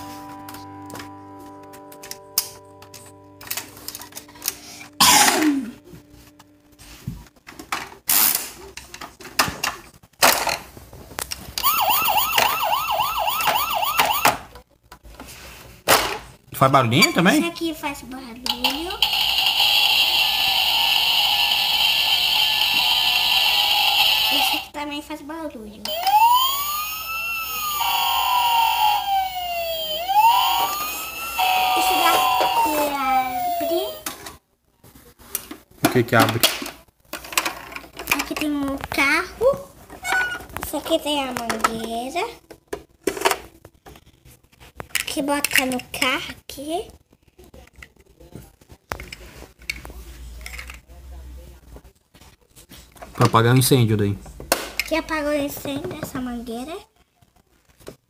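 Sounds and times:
toy electronic siren wailing: 11.6s - 14.4s, 19.0s - 24.7s, 25.9s - 34.1s.

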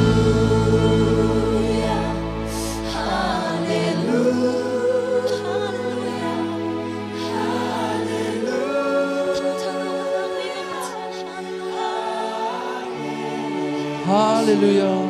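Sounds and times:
group singing slow gospel song: 0.0s - 14.1s.

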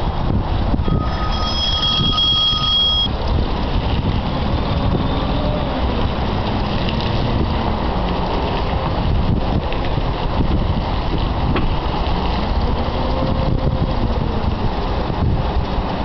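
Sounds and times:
high-pitched tone: 0.8s - 3.2s.

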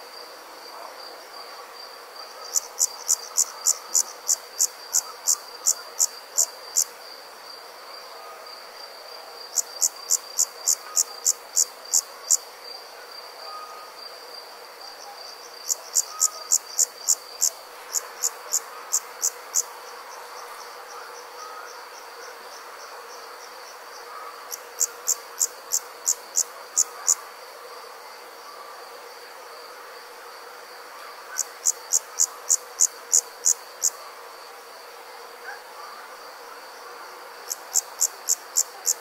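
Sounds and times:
insect sharp loud chirps: 14.9s - 28.8s.

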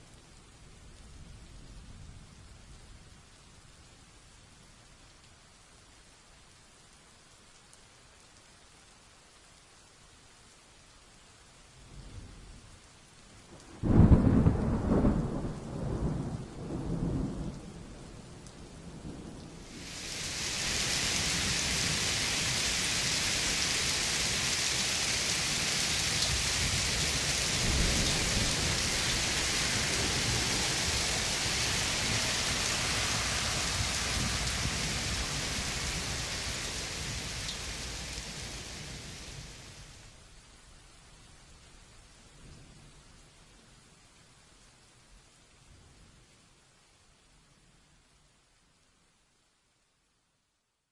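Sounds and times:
heavy rain on pavement: 0.0s - 49.9s
thunderclap rumbling: 25.3s - 39.7s.

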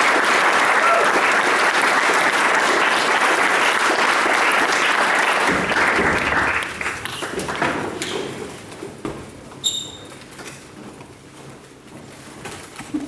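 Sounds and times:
people clapping: 0.0s - 8.4s.

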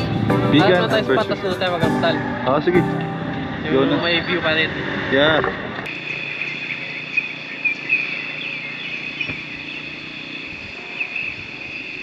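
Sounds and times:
high-pitched insect chorus: 5.9s - 12.0s.

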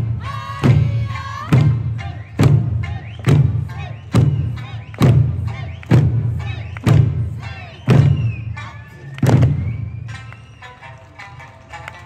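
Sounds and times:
booming drum strokes: 0.0s - 8.5s
music: 0.0s - 12.0s.

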